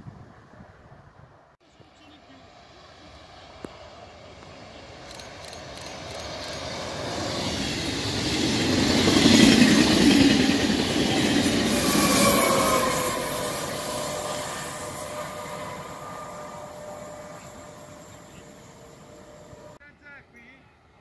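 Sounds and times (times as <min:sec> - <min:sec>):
train wheels rushing on rail: 0:02.0 - 0:19.8
locomotive whining tones: 0:04.8 - 0:19.8.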